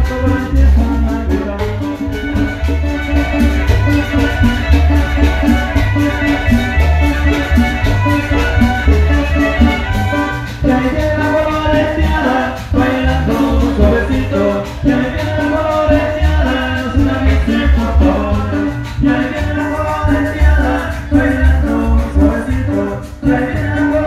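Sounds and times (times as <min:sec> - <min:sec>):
upright bass beat: 0:00.0 - 0:24.0
violins playing melody: 0:02.0 - 0:10.8.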